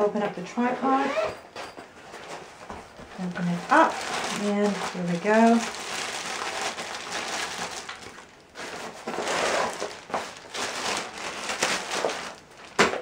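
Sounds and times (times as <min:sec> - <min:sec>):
fabric bag rustling: 0:00.6 - 0:12.8
plastic wrapping crinkling: 0:01.9 - 0:13.0.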